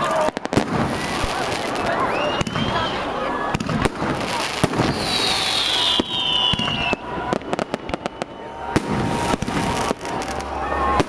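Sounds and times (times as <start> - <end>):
firework bangs: 0.0 - 11.0
firework crackling pops: 0.0 - 11.0
firework whistle falling: 1.8 - 3.1, 4.6 - 11.0.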